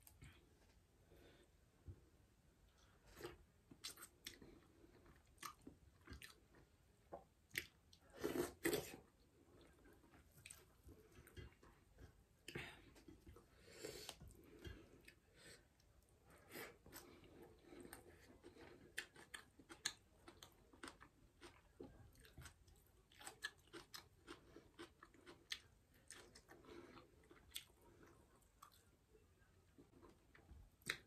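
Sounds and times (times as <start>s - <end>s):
person chewing: 2.8s - 6.7s, 7.5s - 15.8s, 16.5s - 28.9s.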